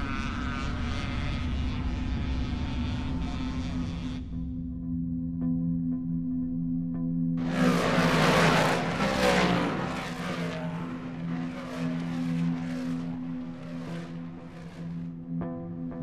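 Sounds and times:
race cars speeding past: 7.4s - 15.3s.

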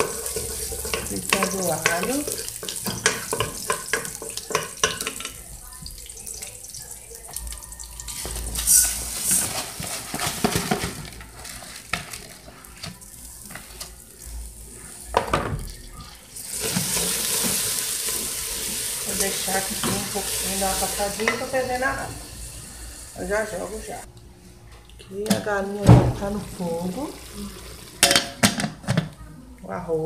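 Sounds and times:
wooden spoon knocking pot: 0.0s - 5.4s
garlic sizzling in oil: 0.0s - 15.1s, 15.8s - 24.1s.

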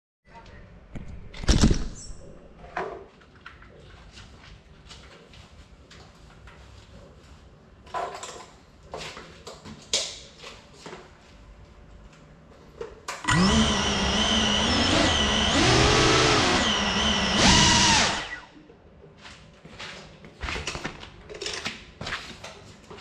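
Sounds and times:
drone motors buzzing whine: 13.3s - 18.5s.

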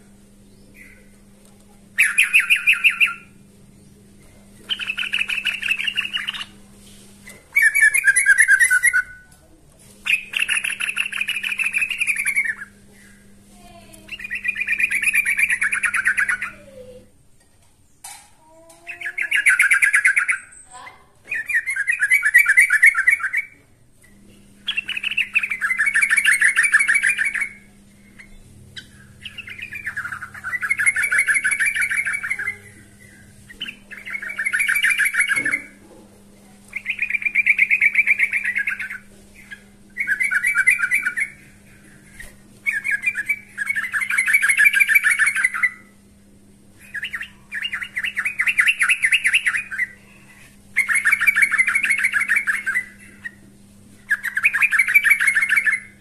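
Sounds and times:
bird singing warbled phrases: 0.0s - 17.2s, 17.9s - 35.8s, 36.4s - 56.0s
faint steady hum: 0.0s - 56.0s.

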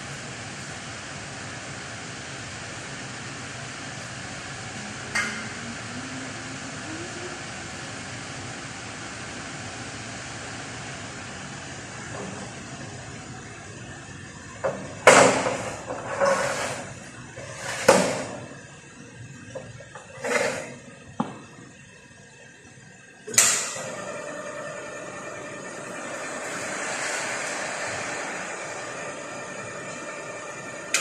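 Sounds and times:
rushing noise: 25.8s - 30.1s.

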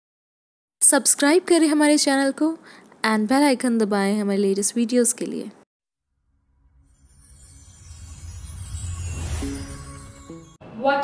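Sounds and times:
whoosh: 6.1s - 10.6s.

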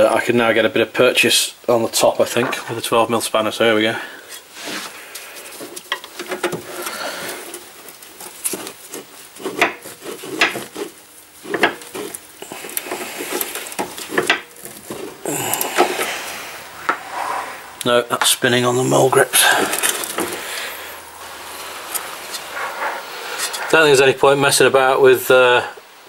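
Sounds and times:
spanner scraping and rubbing: 6.8s - 17.8s, 18.4s - 24.0s.

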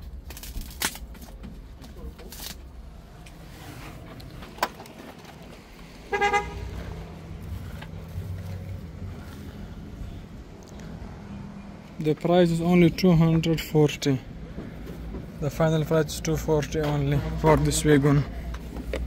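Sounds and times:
car horn toot: 6.1s - 6.9s.

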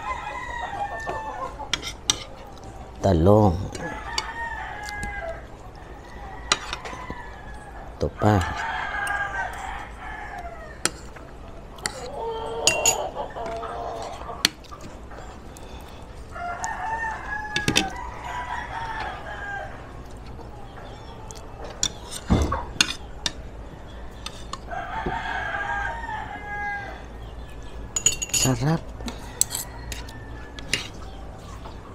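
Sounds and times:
rooster crowing: 0.0s - 1.7s, 3.8s - 10.9s, 12.0s - 14.4s, 16.3s - 20.0s, 23.8s - 27.2s, 29.0s - 31.0s
cutlery clinking on a plate: 6.5s - 7.0s, 11.8s - 13.1s, 21.7s - 23.4s, 28.0s - 30.9s.

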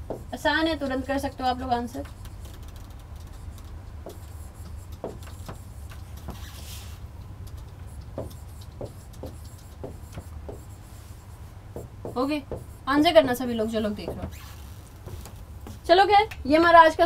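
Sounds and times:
steady low hum: 0.0s - 17.0s
stylus scratching on pen tablet: 0.1s - 7.0s, 7.6s - 14.9s.

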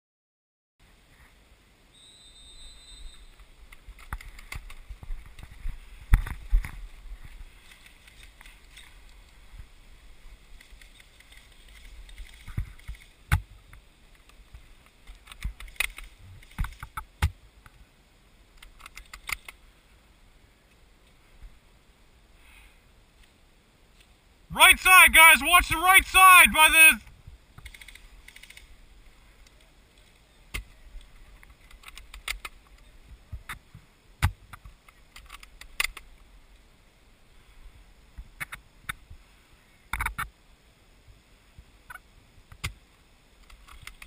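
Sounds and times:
rustling through tall grass: 3.0s - 17.2s.

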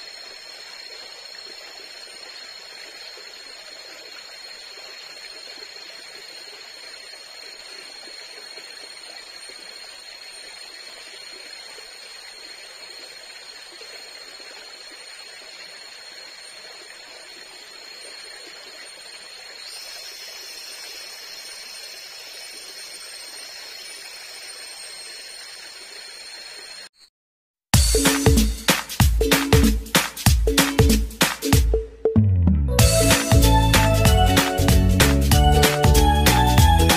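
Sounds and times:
forest stream rushing: 0.0s - 26.8s, 32.8s - 36.9s
higher insect tone: 0.0s - 27.1s, 27.8s - 32.2s, 32.8s - 36.9s
insects buzzing high tones: 0.0s - 27.1s, 27.8s - 31.6s, 32.8s - 36.9s.

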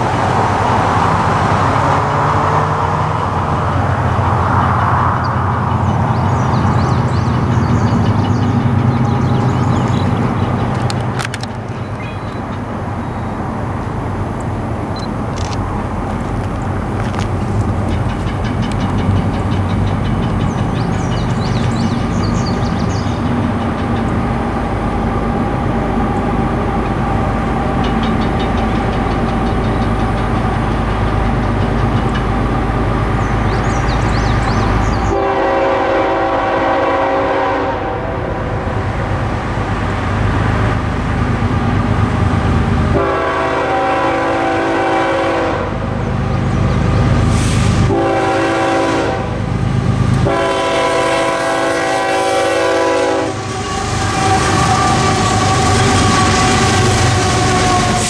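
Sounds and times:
diesel locomotive engines rumbling: 0.0s - 58.0s
locomotive horn blasts: 35.0s - 38.7s, 42.9s - 45.8s, 47.9s - 49.4s, 50.2s - 58.0s.

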